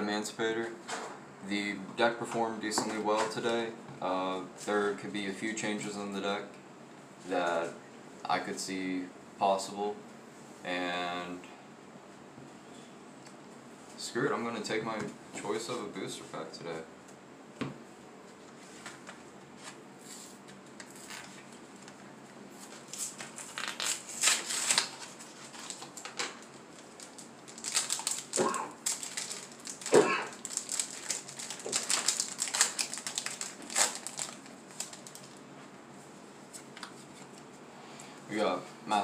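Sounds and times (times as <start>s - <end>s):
foil wrapper crinkling: 22.6s - 35.5s
foil tearing: 22.8s - 35.4s.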